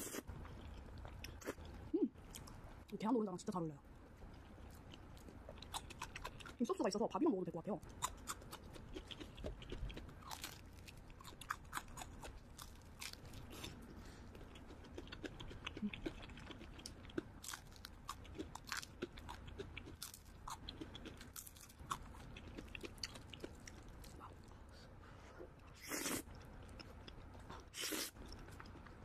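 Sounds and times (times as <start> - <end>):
crunching fried chicken: 7.9 - 13.8, 14.4 - 24.3.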